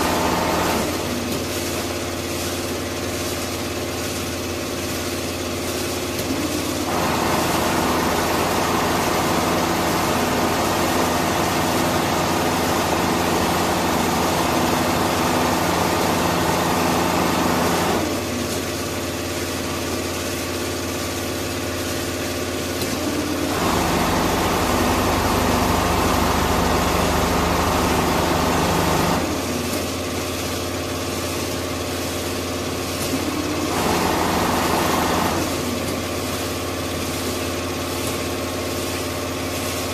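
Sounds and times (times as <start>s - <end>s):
sewing machine mechanical hum: 0.0s - 39.9s.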